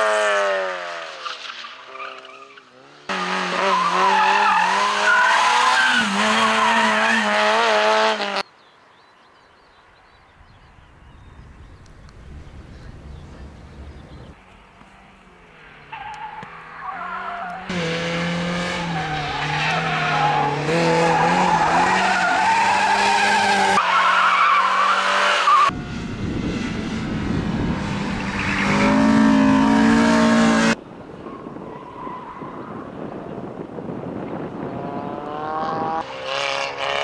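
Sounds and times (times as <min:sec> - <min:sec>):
car engines at high revs: 0:00.0 - 0:08.5, 0:11.8 - 0:30.8, 0:34.1 - 0:37.0.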